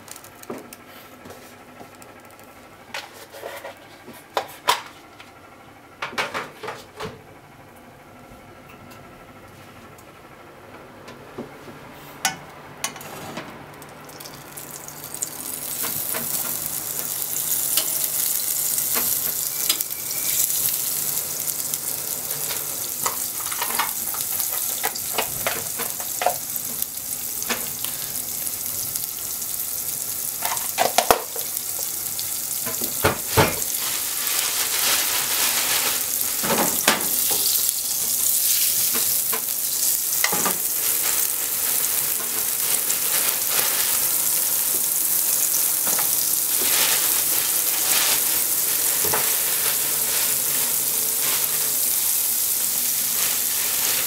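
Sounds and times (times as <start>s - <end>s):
fat sizzling in a frying pan: 0.0s - 0.5s, 14.0s - 54.0s.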